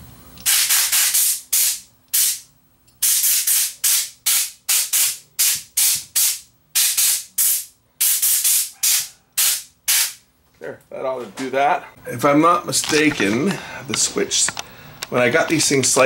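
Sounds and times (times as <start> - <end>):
compressed air blow gun hissing: 3.0 - 10.2.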